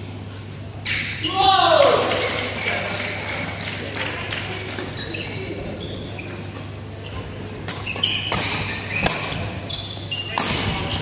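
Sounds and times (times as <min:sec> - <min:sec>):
sneakers squeaking on court: 0:04.9 - 0:11.0
racket striking shuttlecock: 0:07.7 - 0:09.5, 0:10.4 - 0:11.0.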